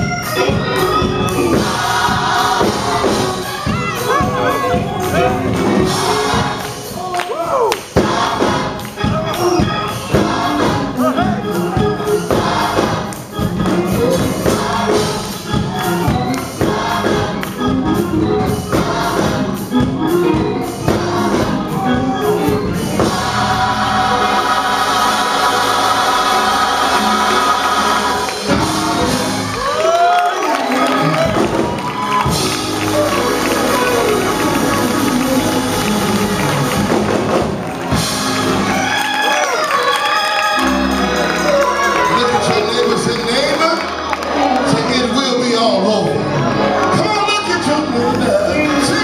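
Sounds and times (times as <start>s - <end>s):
regular beat: 0.0s - 30.1s, 31.0s - 39.2s
gospel choir singing: 0.0s - 49.0s.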